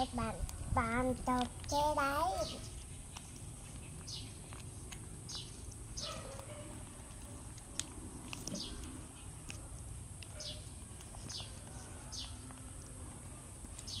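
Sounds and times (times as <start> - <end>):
bird chirping: 1.7 - 2.8, 3.7 - 4.6, 5.3 - 6.5, 8.4 - 8.9, 10.4 - 12.5, 13.8 - 14.0.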